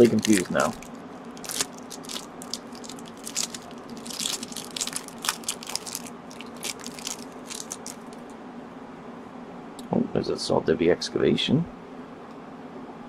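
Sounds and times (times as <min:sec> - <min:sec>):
foil wrapper crinkling: 0:00.0 - 0:08.3.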